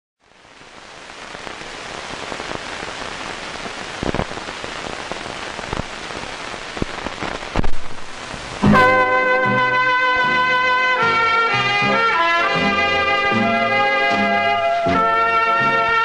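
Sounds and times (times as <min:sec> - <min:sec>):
rain-like hiss: 0:00.2 - 0:16.0
sharp cracks: 0:02.2 - 0:08.6.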